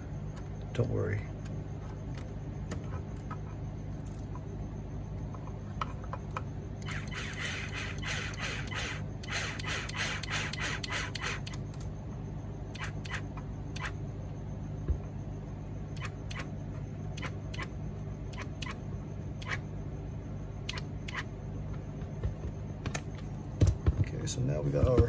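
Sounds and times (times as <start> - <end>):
dull knock: 23.6 - 25.0.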